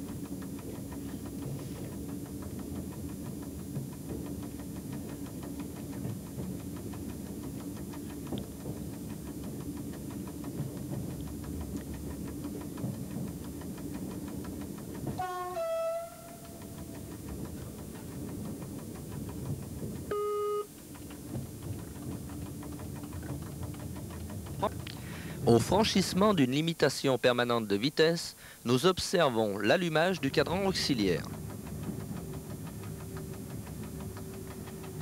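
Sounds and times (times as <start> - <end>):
train rumbling: 0.0 - 35.0
short steady tone: 15.2 - 17.0, 20.1 - 20.8
two-note train horn: 15.2 - 17.0, 20.1 - 20.8.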